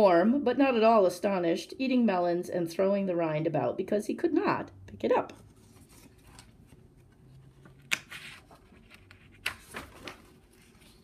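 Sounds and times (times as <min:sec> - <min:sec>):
paper page turning: 0:05.4 - 0:11.0.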